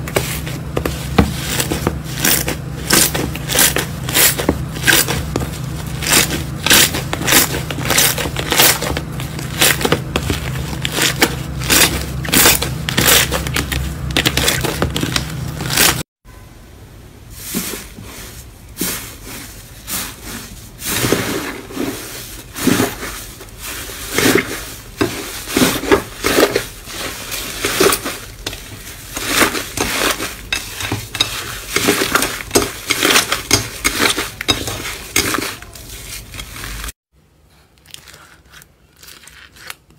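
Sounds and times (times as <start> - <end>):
crunchy slime crackles: 0.0 - 16.0, 37.7 - 39.9
low steady hum: 0.0 - 39.1.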